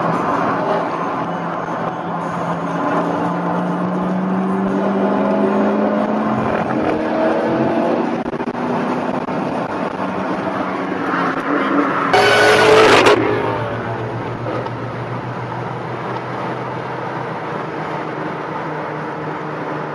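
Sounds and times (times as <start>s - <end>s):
car exhaust droning under acceleration: 12.1s - 19.5s.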